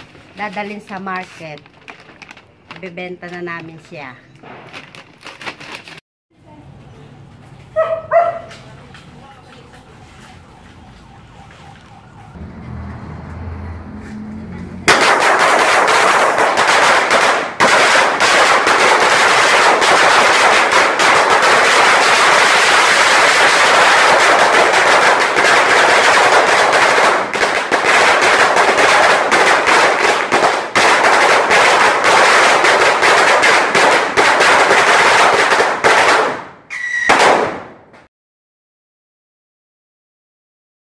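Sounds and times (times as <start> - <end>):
firecrackers crackling: 0.0 - 5.2, 14.8 - 37.8.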